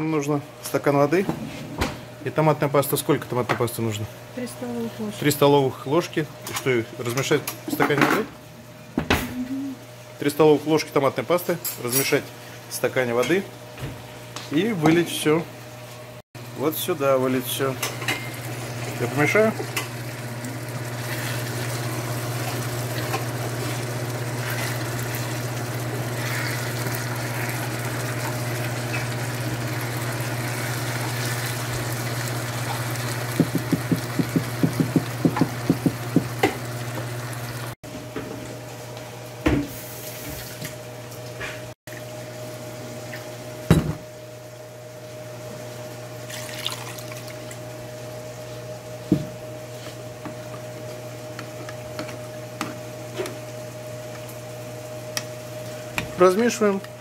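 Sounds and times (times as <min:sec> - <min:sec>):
vegetables sizzling in a pan: 0:17.8 - 0:37.7
spatula tapping a pan: 0:33.4 - 0:36.3.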